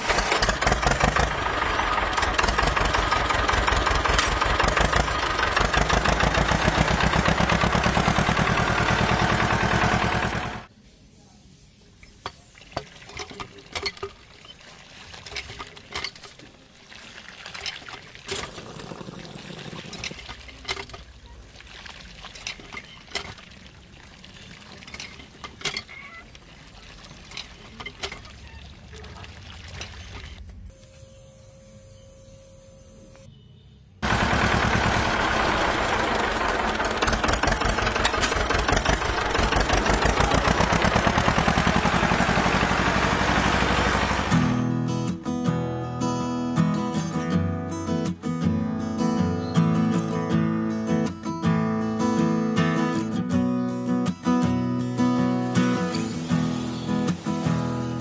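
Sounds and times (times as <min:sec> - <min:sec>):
diesel tractor engine chugging: 0:00.0 - 0:10.7, 0:34.0 - 0:44.6.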